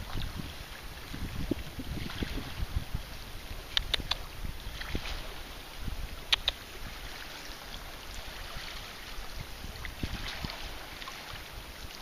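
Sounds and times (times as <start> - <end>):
water lapping and dripping: 0.0 - 12.0
wind rumble on microphone: 0.0 - 12.0
small sharp clicks: 3.7 - 4.2, 6.3 - 6.6.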